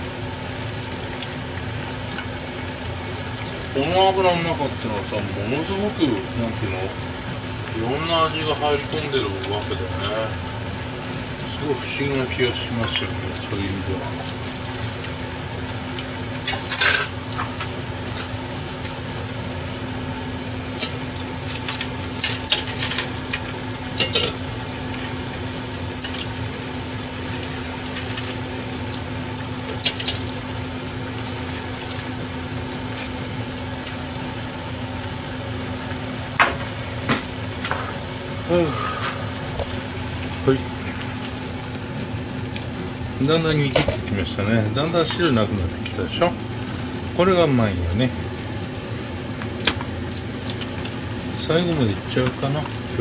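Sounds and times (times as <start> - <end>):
oil sizzling and bubbling: 0.0 - 53.0
metal utensils clinking: 16.4 - 17.2, 24.0 - 24.4.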